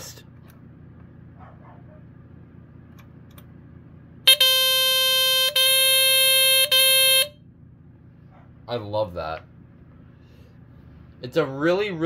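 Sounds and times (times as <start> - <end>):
smoke alarm shrill tone: 4.3 - 7.4.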